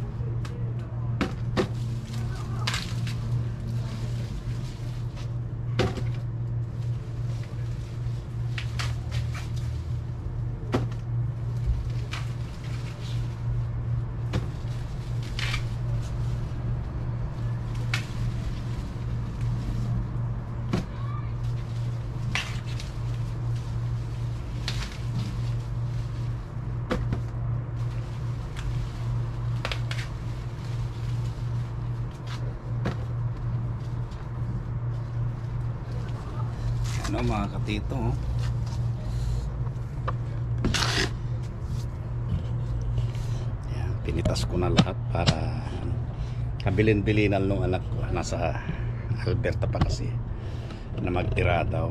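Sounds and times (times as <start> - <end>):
steady low hum: 0.0 - 51.9
leaf rustle: 1.4 - 44.7
corn ears snapping off stalks: 1.6 - 3.4, 17.7 - 18.7, 29.6 - 30.2.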